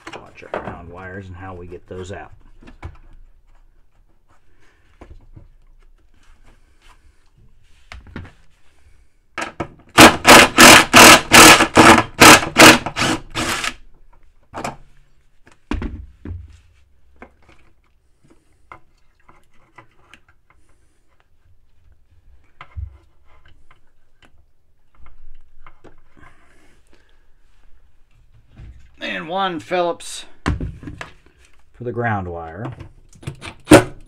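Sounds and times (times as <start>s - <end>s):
handling knocks and clunks: 0.0s - 1.0s
impact driver running in pulses: 10.0s - 13.8s.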